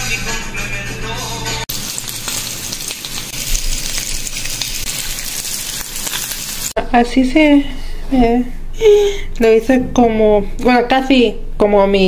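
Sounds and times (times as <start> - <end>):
sausage sizzling in a frying pan: 1.7 - 6.8.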